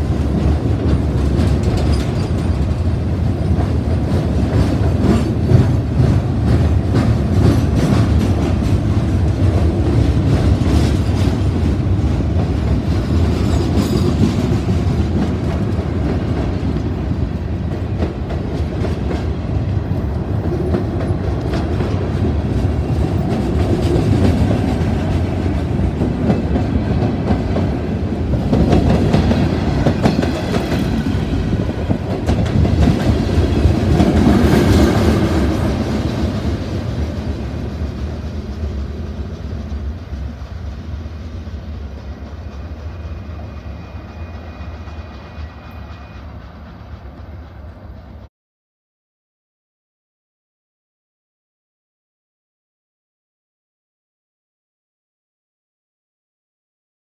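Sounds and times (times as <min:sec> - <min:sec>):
wheels clacking over rail joints: 0:00.0 - 0:40.9
freight train rumbling past: 0:00.0 - 0:48.3.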